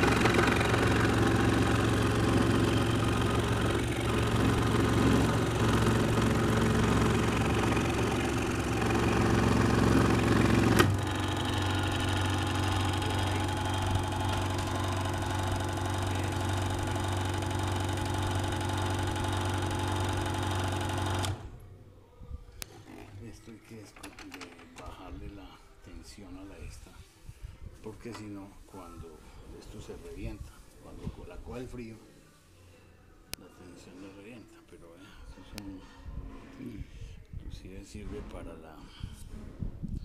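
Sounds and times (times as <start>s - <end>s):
scroll saw cutting wood: 0.0s - 21.4s.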